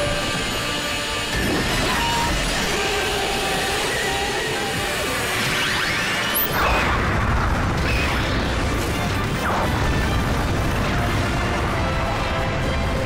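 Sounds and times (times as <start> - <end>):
battle music: 7.6 - 13.0.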